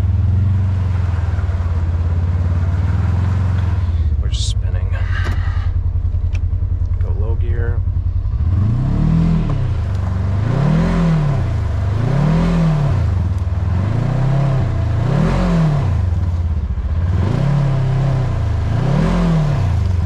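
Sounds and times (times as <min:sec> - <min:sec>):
engine revving: 0:00.0 - 0:20.0.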